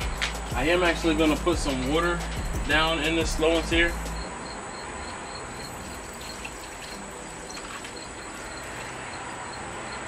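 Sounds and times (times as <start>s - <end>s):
water pouring from a pitcher: 5.8s - 7.9s.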